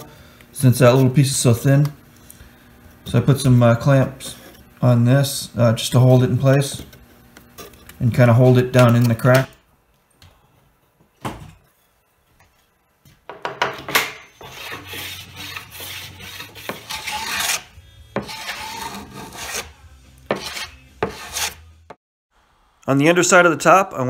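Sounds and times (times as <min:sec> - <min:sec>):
hand tool scraping wood: 0:14.4 - 0:21.6.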